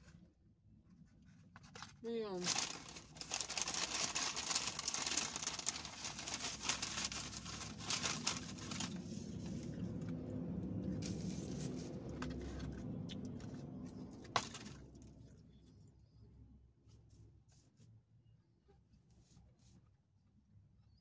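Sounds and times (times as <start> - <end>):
paper packaging crinkling: 1.4 - 9.8, 14.4 - 14.8.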